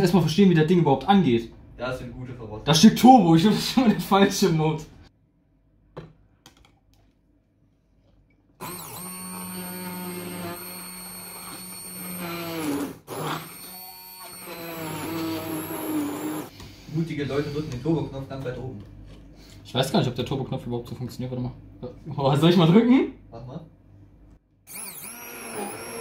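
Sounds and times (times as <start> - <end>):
blender motor running: 8.6 - 16.5, 24.7 - 26.0.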